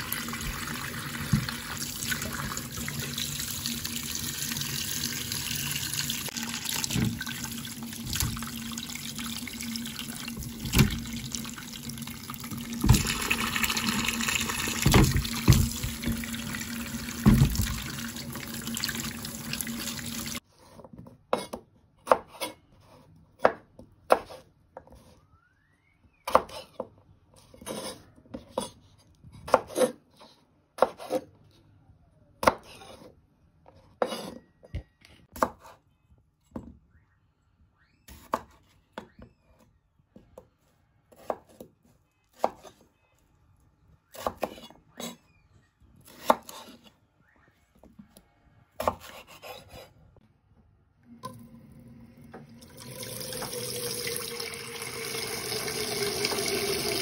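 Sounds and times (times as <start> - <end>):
tap water running: 0.0 - 20.4, 51.2 - 57.0
knife slicing potatoes: 46.0 - 46.9, 48.8 - 50.0.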